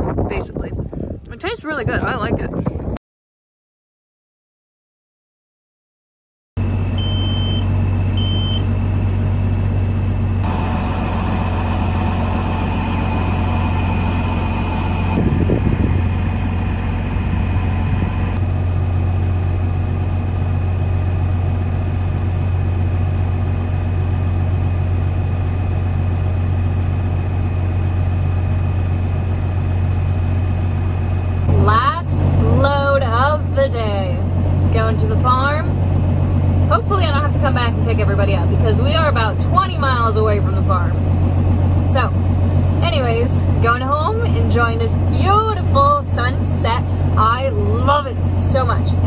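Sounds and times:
diesel truck engine idling: 6.6 - 49.0
short high beeps: 7.0 - 8.7.

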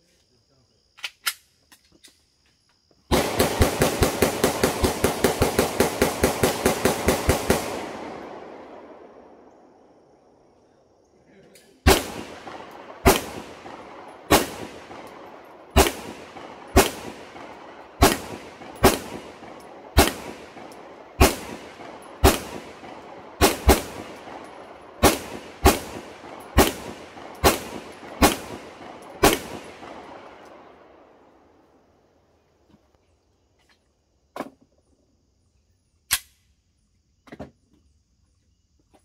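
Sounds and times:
pistol shots: 3.1 - 9.7, 11.8 - 30.9.

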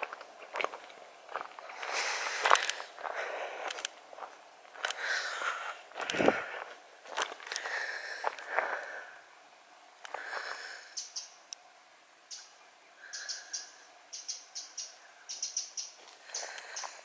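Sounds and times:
footsteps on woodland path: 0.0 - 9.2, 10.1 - 10.8, 15.3 - 17.0.

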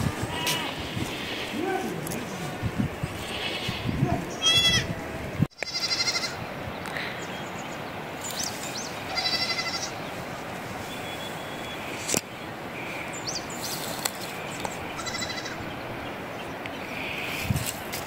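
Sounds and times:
livestock bleating: 0.3 - 1.6, 3.2 - 4.9, 5.6 - 6.4, 9.1 - 10.0, 15.0 - 15.6.

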